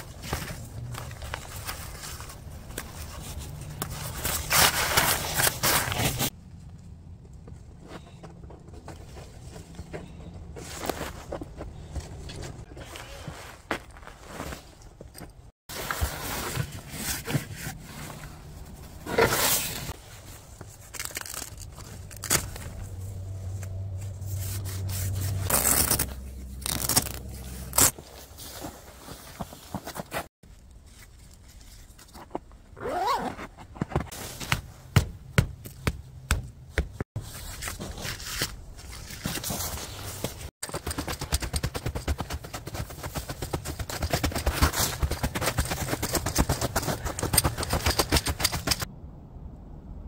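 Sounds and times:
tent fabric rustling: 0:00.0 - 0:06.4, 0:15.7 - 0:31.9, 0:32.8 - 0:35.0, 0:37.1 - 0:41.2.

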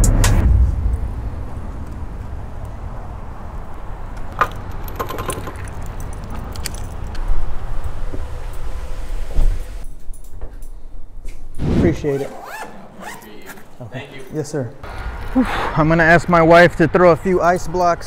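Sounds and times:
road rumble: 0:00.0 - 0:11.6, 0:12.2 - 0:18.0
electric bike rolling: 0:00.8 - 0:09.9
metallic clicks and rattles: 0:04.2 - 0:07.4.

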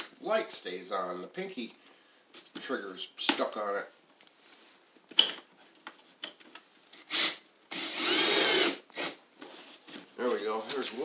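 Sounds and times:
cordless drill driving a screw: 0:07.0 - 0:09.2.

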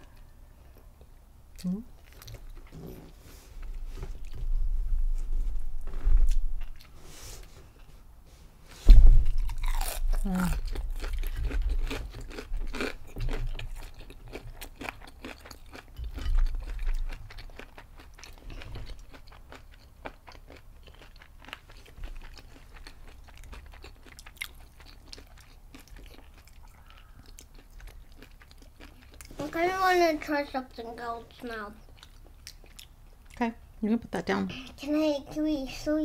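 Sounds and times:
crunchy biting and chewing: 0:09.2 - 0:29.3.

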